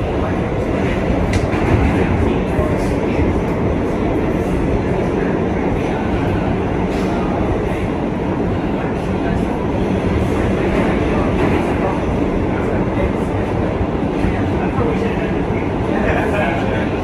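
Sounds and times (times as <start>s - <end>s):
subway wheels rumbling on rail: 0.0s - 17.0s.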